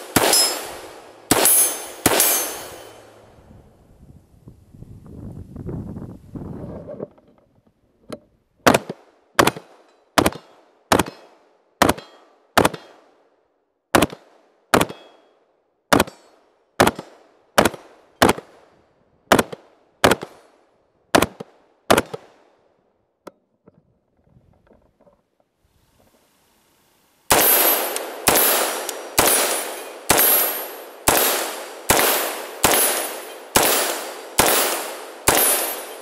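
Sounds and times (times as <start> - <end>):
rifle shots with echo: 0.0 - 3.2, 8.6 - 13.3, 13.9 - 15.3, 15.9 - 16.2, 16.8 - 18.7, 19.3 - 20.5, 21.1 - 22.5, 27.3 - 36.0.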